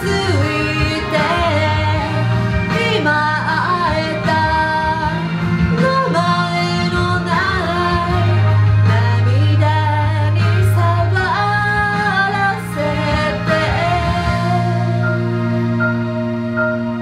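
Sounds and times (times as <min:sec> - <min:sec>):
woman singing with vibrato: 0:00.0 - 0:15.4
instrumental backing: 0:00.0 - 0:17.0.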